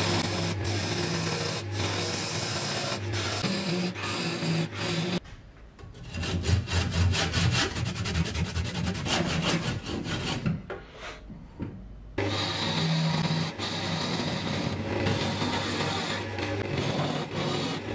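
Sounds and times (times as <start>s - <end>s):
hand saw cutting: 0.0s - 5.2s, 6.0s - 10.6s, 12.2s - 17.9s
lathe gouge cutting spinning wood: 0.0s - 5.2s, 12.2s - 17.9s.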